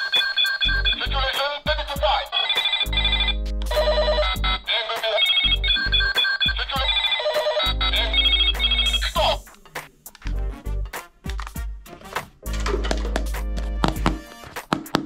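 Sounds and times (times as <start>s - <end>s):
toy walkie-talkie beeping tunes: 0.0s - 1.5s, 2.3s - 9.4s.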